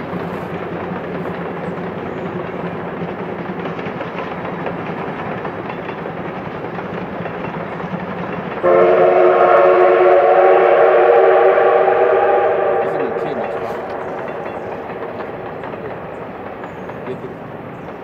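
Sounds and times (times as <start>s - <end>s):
steam locomotives running: 0.0s - 18.0s
steam whistle blast: 8.6s - 14.0s.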